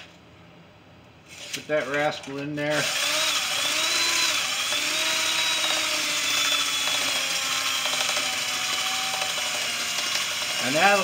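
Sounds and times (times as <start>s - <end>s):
cordless drill whining: 2.7s - 11.0s.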